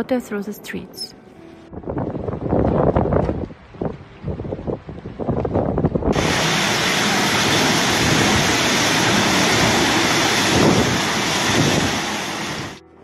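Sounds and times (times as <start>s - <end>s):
storm wind and heavy rain: 1.7s - 12.8s
low rumble: 5.6s - 12.8s.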